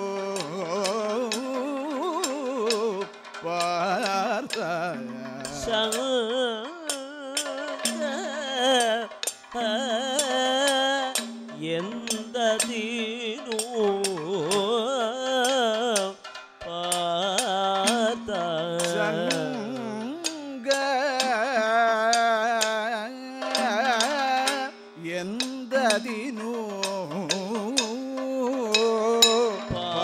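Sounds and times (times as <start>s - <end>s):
person singing ornamented melody: 0.0s - 30.0s
sharp percussion strikes: 0.0s - 30.0s.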